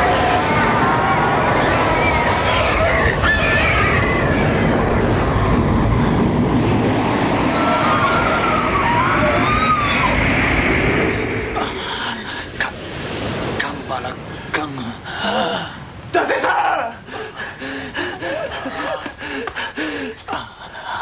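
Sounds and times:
rumbling roar: 0.0s - 13.6s.

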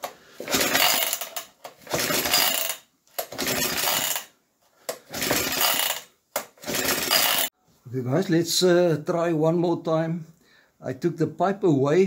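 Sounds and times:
recoil pull starter whirring: 0.0s - 4.3s, 4.9s - 7.5s.

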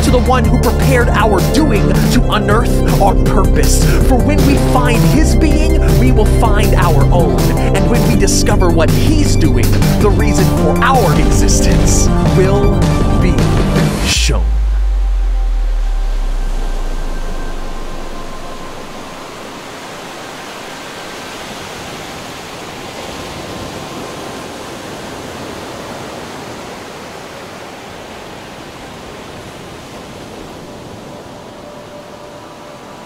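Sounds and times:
steady rushing noise: 13.7s - 33.0s.

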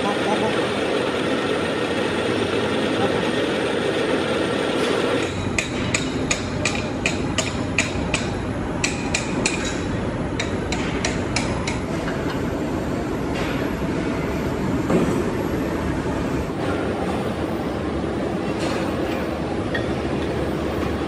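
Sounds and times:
workshop machinery running: 0.0s - 21.0s
sharp metallic knocks: 5.2s - 11.8s.

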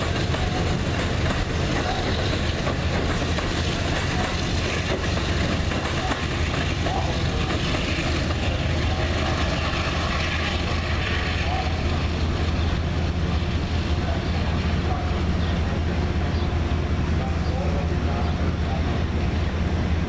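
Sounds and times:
train wheels clickety-clack: 0.0s - 12.8s
train rumble: 0.0s - 20.0s.

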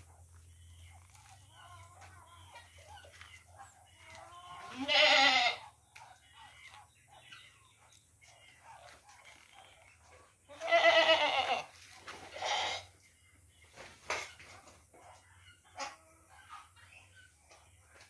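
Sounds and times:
goats bleating: 4.1s - 5.6s, 10.5s - 13.0s.

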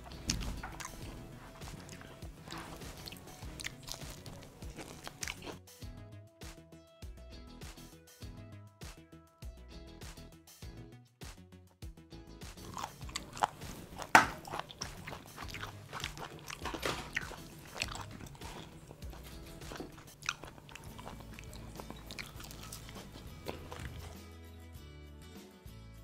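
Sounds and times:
crunching of fried chicken: 0.0s - 5.6s, 12.6s - 24.2s
background music: 0.0s - 26.0s.

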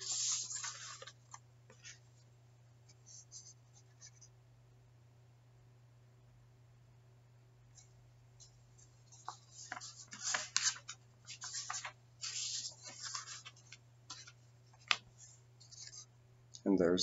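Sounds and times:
paper rustling and crinkling: 0.0s - 2.0s, 8.8s - 16.1s.

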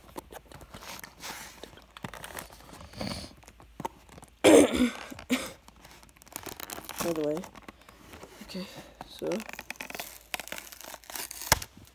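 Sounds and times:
person coughing: 4.4s - 5.6s.

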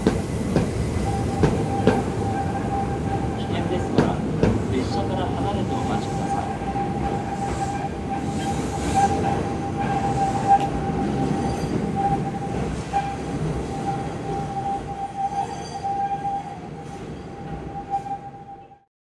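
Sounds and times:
train wheels squealing: 1.0s - 4.2s, 4.8s - 18.9s.

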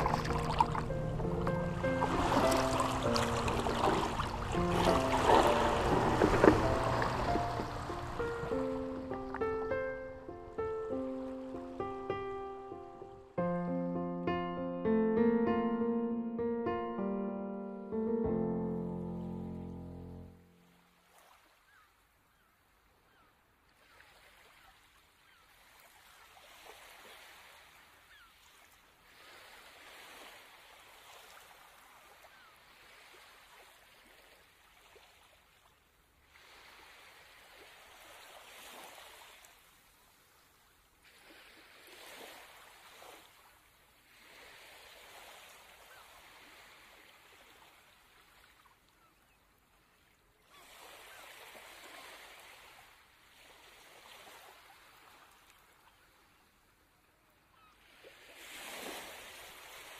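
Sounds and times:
small waves lapping on sand: 0.0s - 11.8s, 20.4s - 59.9s.

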